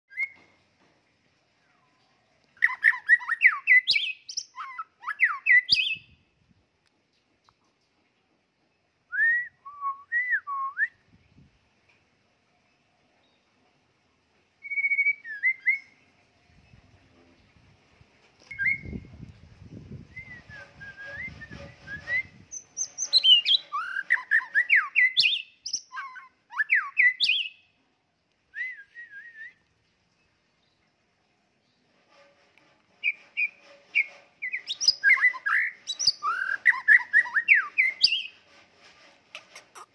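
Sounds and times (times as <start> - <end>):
bird singing whistled notes: 0.1 - 0.5, 2.6 - 6.3, 14.6 - 16.8, 18.4 - 19.2, 20.0 - 27.8, 28.5 - 29.7, 33.0 - 38.4.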